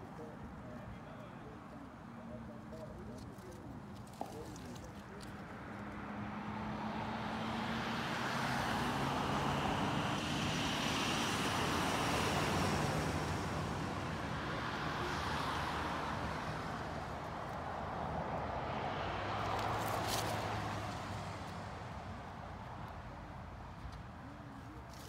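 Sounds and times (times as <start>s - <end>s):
vehicle passing: 4.7s - 23.2s.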